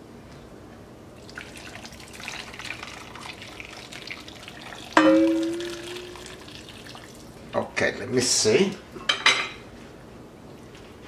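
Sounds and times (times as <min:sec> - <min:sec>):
broth pouring and splashing: 0:01.2 - 0:07.5
metal pan clanking and ringing: 0:05.0 - 0:06.2.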